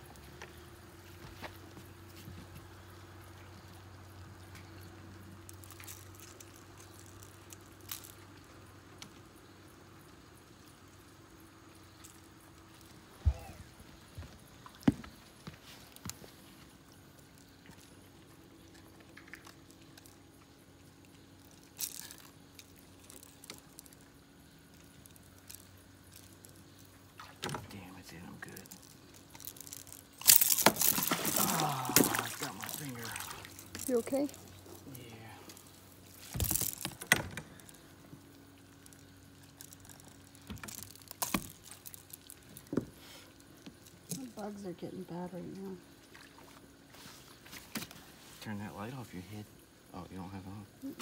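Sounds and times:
faint steady hum: 0:00.0 - 0:51.0
water splashing and dripping: 0:26.1 - 0:34.4.

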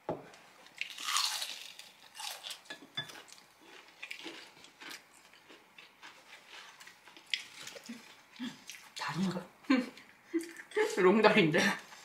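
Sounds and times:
crunching and chewing fried food: 0:00.6 - 0:09.1.

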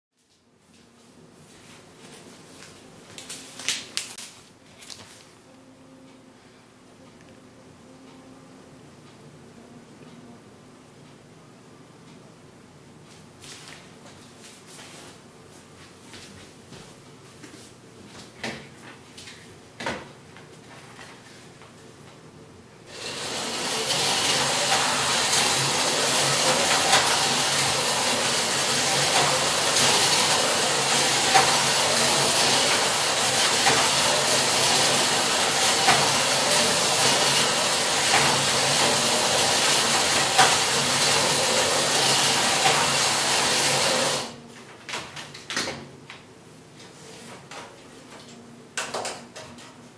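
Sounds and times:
slot cars whirring: 0:22.9 - 0:44.3.

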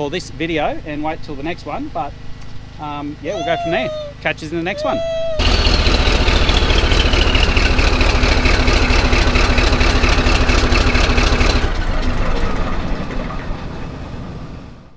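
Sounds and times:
diesel engine running loud: 0:05.4 - 0:14.9.

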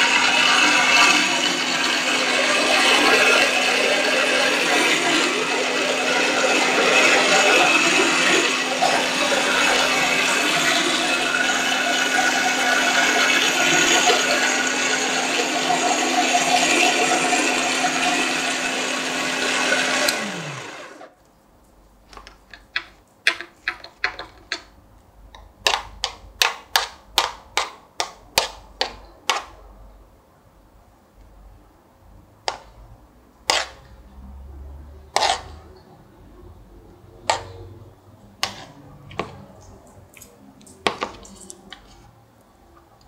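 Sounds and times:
dessert maker motor grinding: 0:00.0 - 0:21.1.

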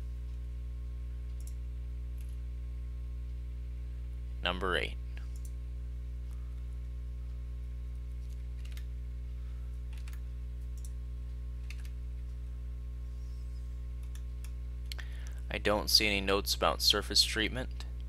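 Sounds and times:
low electrical hum: 0:00.0 - 0:18.0
computer mouse clicks: 0:01.3 - 0:01.6, 0:05.2 - 0:05.6, 0:08.2 - 0:08.9, 0:09.9 - 0:11.0, 0:11.6 - 0:12.0, 0:14.0 - 0:14.6.

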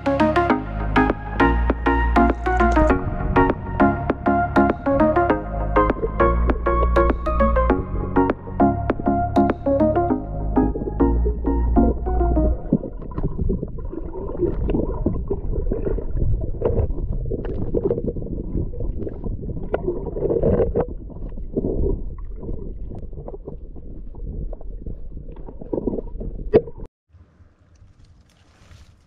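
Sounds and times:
muffled underwater rumble: 0:00.0 - 0:26.9
water gurgling: 0:10.6 - 0:26.9
small crackles: 0:12.7 - 0:29.0.

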